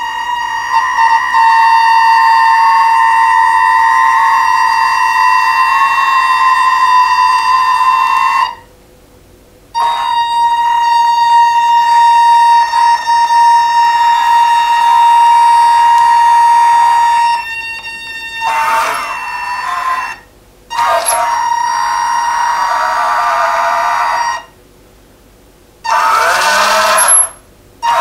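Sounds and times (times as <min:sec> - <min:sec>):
electric motors whining: 0:12.8 - 0:20.0, 0:20.7 - 0:24.3, 0:25.9 - 0:28.0.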